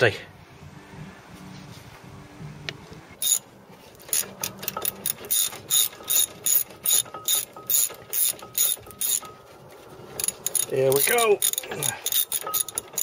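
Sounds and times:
ratchet wrench clicking: 0:03.2 - 0:09.4, 0:10.2 - 0:13.0.

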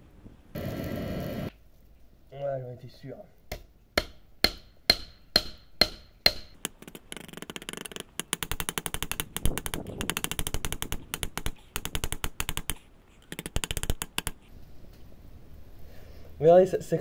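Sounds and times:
hammer striking metal: 0:03.5 - 0:06.6.

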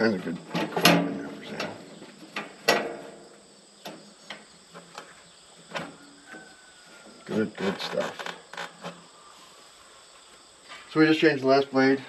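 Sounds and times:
metal clanks and knocks: 0:00.4 - 0:06.5.

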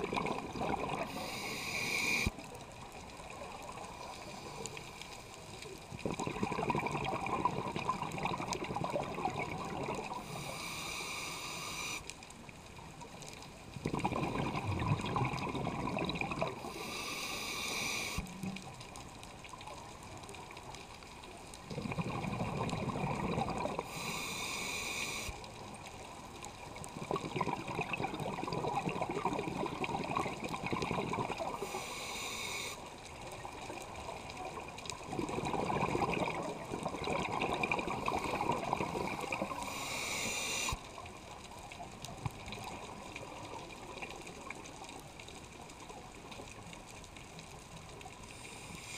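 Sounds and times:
exhaled bubbles gurgling: 0:00.0 - 0:04.9, 0:05.6 - 0:12.0, 0:13.7 - 0:20.7, 0:21.4 - 0:32.3, 0:32.9 - 0:45.2
scuba regulator hissing inhalations: 0:00.9 - 0:02.4, 0:10.2 - 0:12.1, 0:16.5 - 0:18.3, 0:23.8 - 0:25.4, 0:31.5 - 0:32.9, 0:38.0 - 0:40.8, 0:48.3 - 0:48.9.

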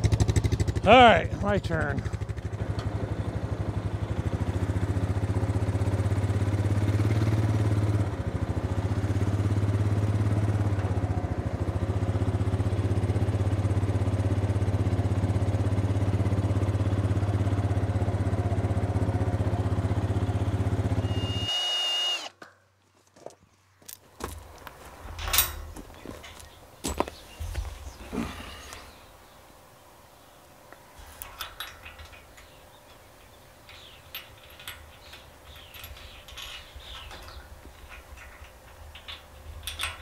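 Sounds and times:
atv engine running: 0:00.0 - 0:21.5, 0:31.3 - 0:40.0.

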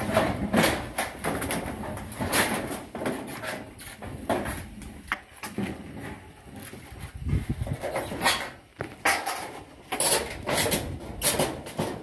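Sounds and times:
metal roofing sheet rattling: 0:00.0 - 0:04.8, 0:05.4 - 0:12.0
metallic scrapes and clatters: 0:07.6 - 0:12.0.

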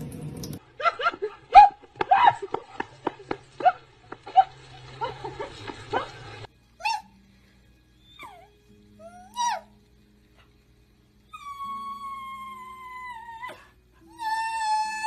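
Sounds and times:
running tap water: 0:00.0 - 0:01.2, 0:01.9 - 0:08.0
dog yelping: 0:08.0 - 0:09.7.

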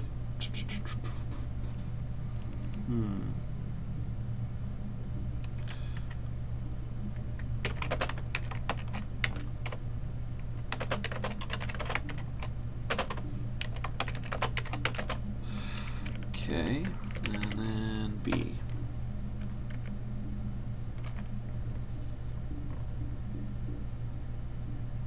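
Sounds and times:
steady low hum: 0:00.0 - 0:25.0
keyboard typing: 0:05.4 - 0:06.2, 0:07.4 - 0:09.8, 0:10.4 - 0:15.2, 0:16.0 - 0:18.8, 0:19.4 - 0:20.0, 0:20.9 - 0:21.4.

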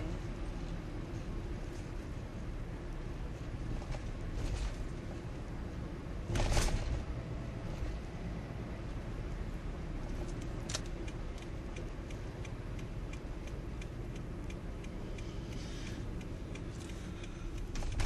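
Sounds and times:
road and engine rumble: 0:00.0 - 0:18.0
light regular ticking: 0:10.0 - 0:18.0.

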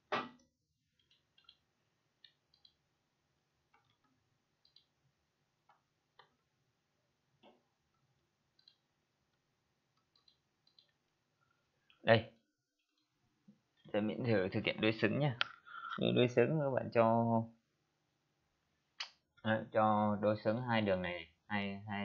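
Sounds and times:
faint computer mouse clicks: 0:04.6 - 0:04.9.

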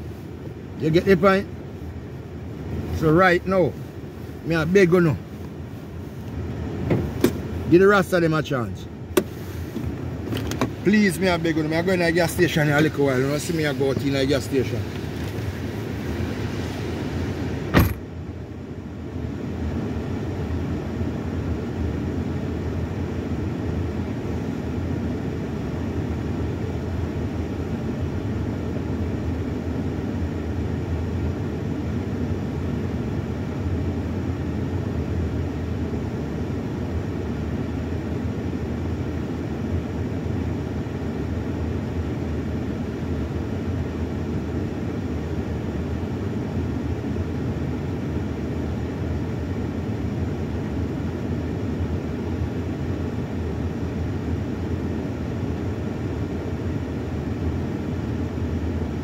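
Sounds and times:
car idling rumble: 0:00.0 - 0:59.0.

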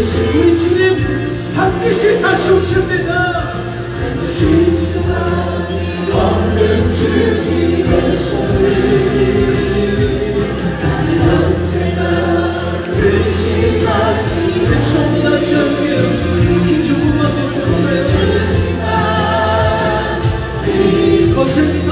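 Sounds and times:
choir singing gospel song: 0:00.0 - 0:21.9
instrumental accompaniment: 0:00.0 - 0:21.9.

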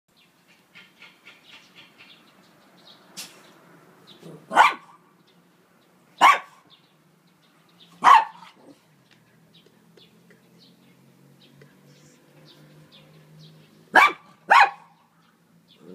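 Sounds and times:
small dog barking: 0:04.3 - 0:05.0, 0:06.2 - 0:06.7, 0:08.0 - 0:08.8, 0:13.9 - 0:15.0.

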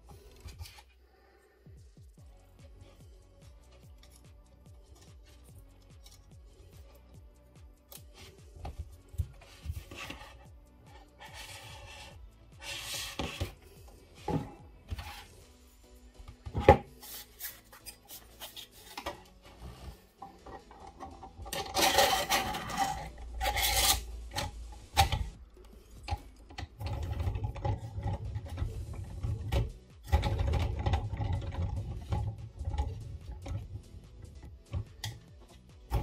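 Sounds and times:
plastic scraping and rubbing: 0:07.9 - 0:15.4, 0:16.3 - 0:36.0.

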